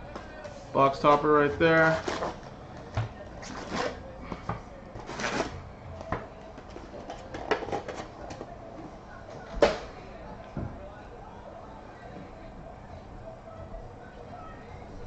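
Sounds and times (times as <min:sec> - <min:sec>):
foil packs rustling: 0:05.0 - 0:05.6.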